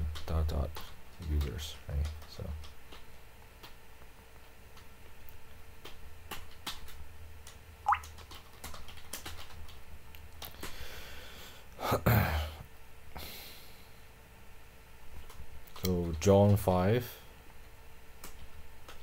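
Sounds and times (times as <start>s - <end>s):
keyboard typing: 7.9s - 9.8s.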